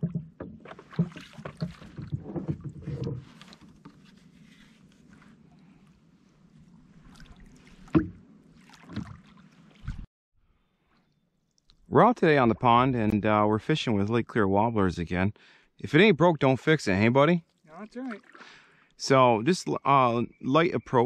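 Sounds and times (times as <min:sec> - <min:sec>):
paddle knocking against hull: 0:00.0 - 0:04.1, 0:07.8 - 0:08.2
paddle strokes in water: 0:00.0 - 0:10.1, 0:17.5 - 0:18.6.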